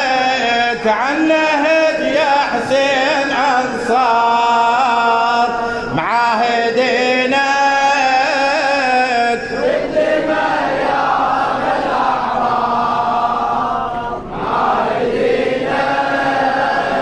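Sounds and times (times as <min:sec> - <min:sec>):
man chanting a lament into a microphone: 0:00.0 - 0:10.6.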